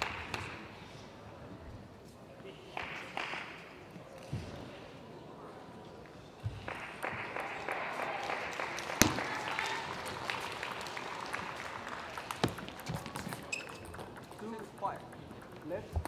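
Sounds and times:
audience applauding: 6.7 - 14.7
loud sharp knock: 9.0 - 9.4.

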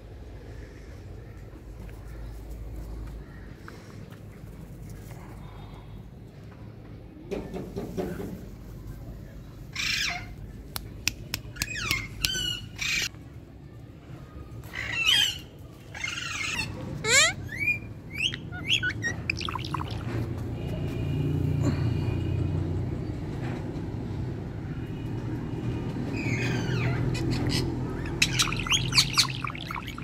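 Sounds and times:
parakeet squawking and chirping: 16.0 - 20.2, 26.2 - 30.0.

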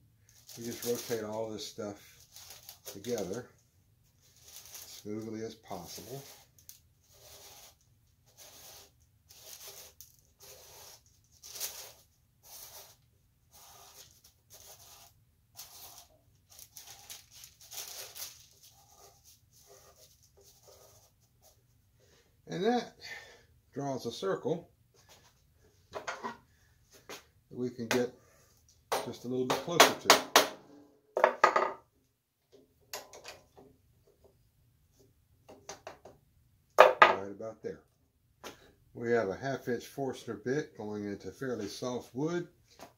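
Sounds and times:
marker tip scratching: 7.1 - 11.0, 11.7 - 16.1.

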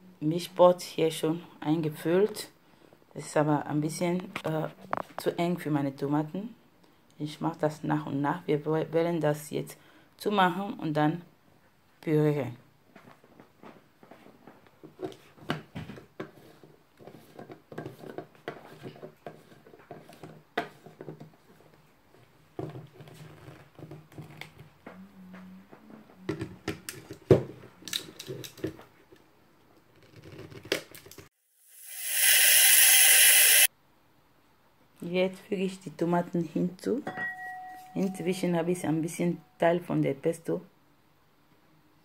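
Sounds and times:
blender motor running: 31.6 - 33.7.

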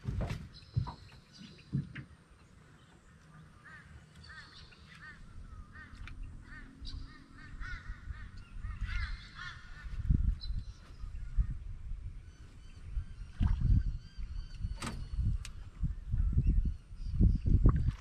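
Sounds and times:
bird calling: 0.5 - 11.4.

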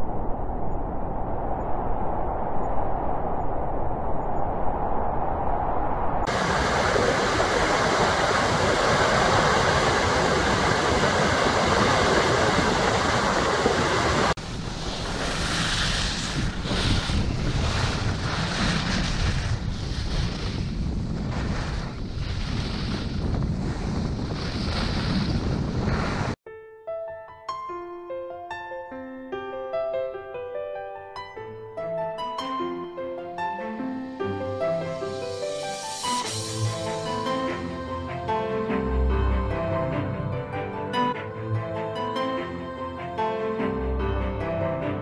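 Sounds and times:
strong wind buffeting microphone: 0.0 - 26.4
skis scraping on snow: 6.3 - 26.4.

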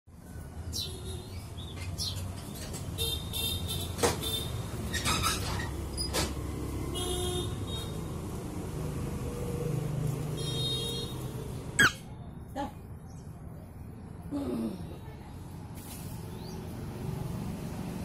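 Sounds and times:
low rumble of road traffic: 0.1 - 18.0
parakeet squawks and chirps: 11.8 - 12.0.

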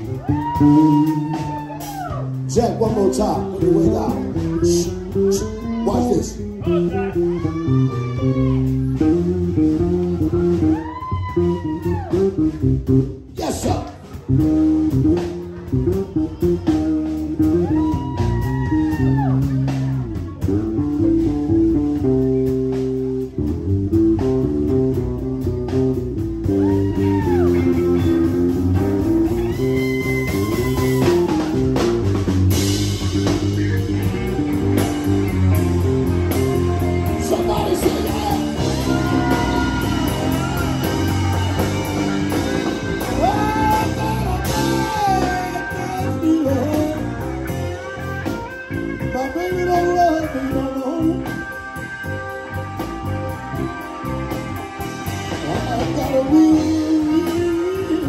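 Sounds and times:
drums and cymbals: 0.0 - 58.0
electric bass: 0.0 - 58.0
electric guitar lead: 0.0 - 58.0
keyboard: 19.1 - 58.0.

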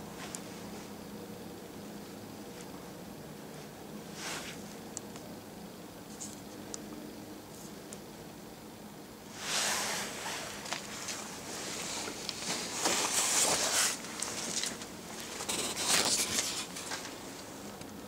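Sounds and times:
rustling handling noise: 9.4 - 17.8.

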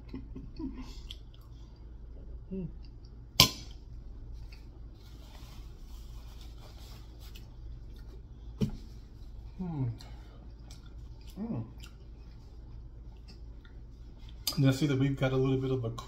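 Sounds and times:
paper napkin rustling: 4.9 - 7.6.

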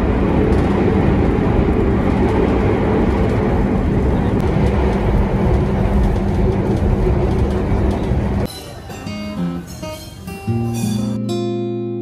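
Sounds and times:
train rumble inside carriage: 0.0 - 8.8
soft instrumental music: 8.5 - 12.0.

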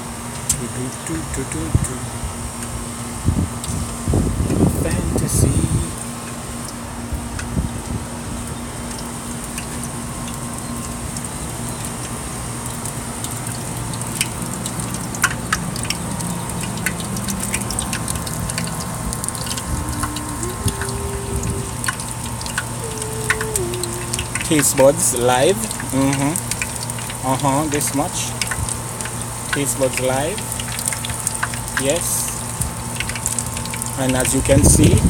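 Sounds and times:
steady low hum: 0.0 - 35.0
cooking oil sizzling in a pan: 5.6 - 35.0.

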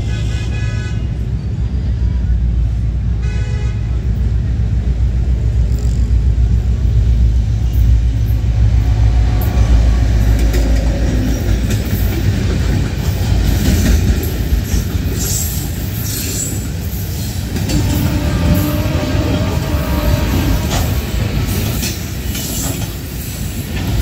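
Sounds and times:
locomotive engine rumble: 3.8 - 24.0
wheels clattering over rail joints: 9.2 - 24.0.

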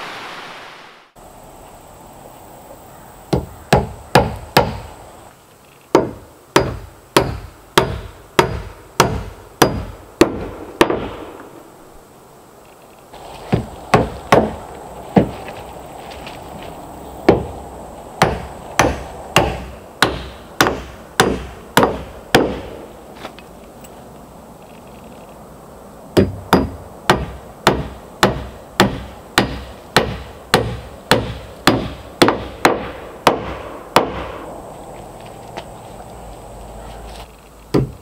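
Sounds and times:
hammer driving nails into wood: 37.7 - 38.0.

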